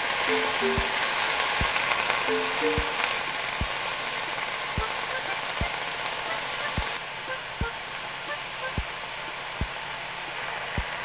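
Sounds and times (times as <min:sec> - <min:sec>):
meat sizzling in a pan: 0:00.0 - 0:07.0
soft background music with beat: 0:00.3 - 0:03.2, 0:04.8 - 0:05.8.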